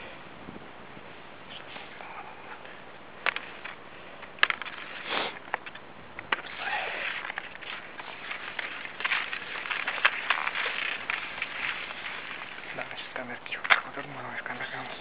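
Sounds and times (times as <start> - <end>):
skis scraping on icy snow: 4.4 - 15.0.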